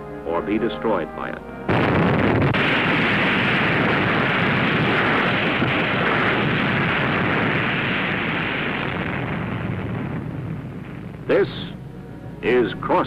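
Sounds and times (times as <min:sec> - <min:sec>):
bomb blast rushing rumble: 0:01.7 - 0:11.8.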